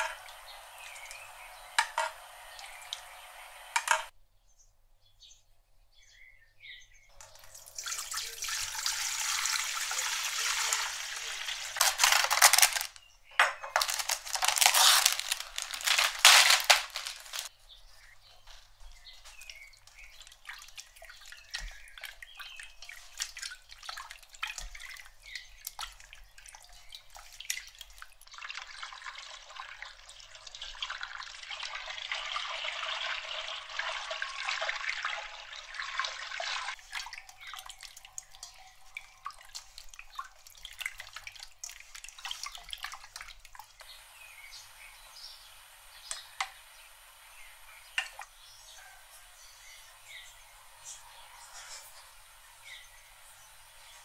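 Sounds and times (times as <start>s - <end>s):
tap water running into a bowl: 0.0s - 4.1s, 7.1s - 17.5s, 19.4s - 44.0s, 44.6s - 48.6s
water splashing in a bowl: 7.1s - 12.9s, 13.5s - 17.5s, 19.4s - 43.9s.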